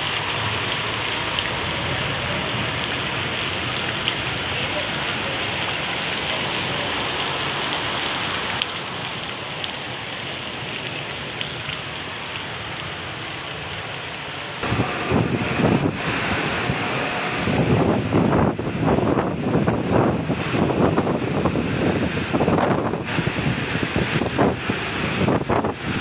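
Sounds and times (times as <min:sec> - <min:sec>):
heavy rain pouring on road: 0:00.0 - 0:26.0
wind buffeting microphone: 0:14.6 - 0:26.0.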